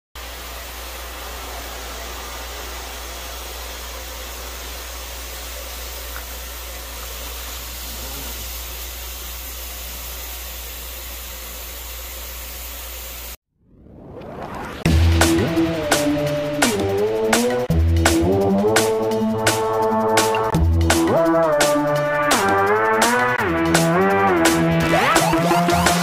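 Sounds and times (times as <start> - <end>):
machine whoosh with low hum: 0.2 - 20.2.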